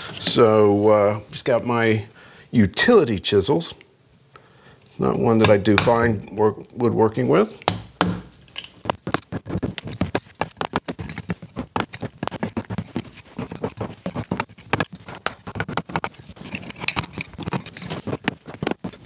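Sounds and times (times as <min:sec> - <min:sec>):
chisel chipping bark off wood: 0:07.6 - 0:19.0.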